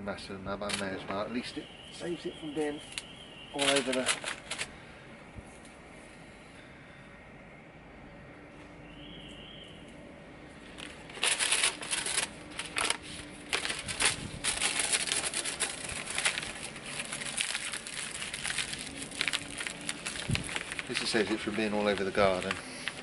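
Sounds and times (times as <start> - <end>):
plant stems rustling and crackling: 0.6 - 4.8, 10.6 - 23.0.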